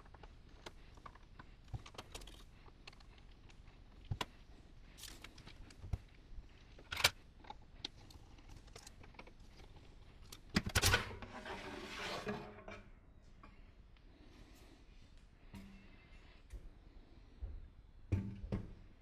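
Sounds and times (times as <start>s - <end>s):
sheet-metal cover scraping: 10.8s - 12.8s.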